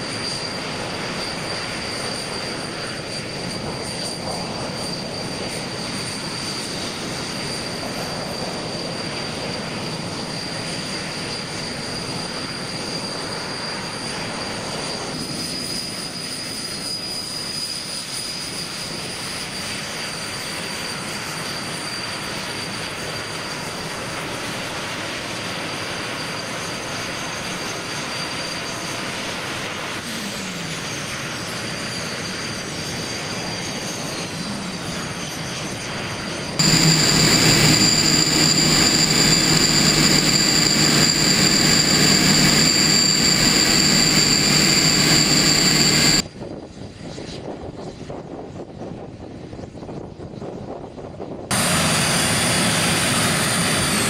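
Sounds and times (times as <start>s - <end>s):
jet engines whining: 0.0s - 46.2s, 51.5s - 54.0s
rush of exhaust noise: 36.6s - 46.2s, 51.5s - 54.0s.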